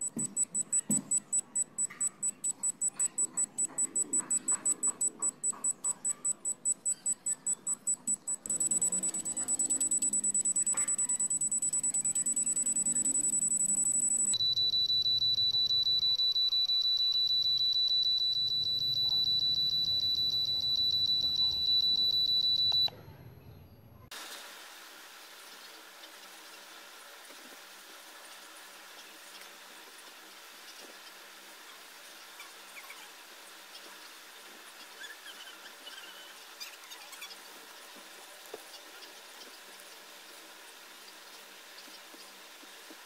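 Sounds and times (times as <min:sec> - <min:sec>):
meter buzzer beeping: 0:00.0 - 0:23.0.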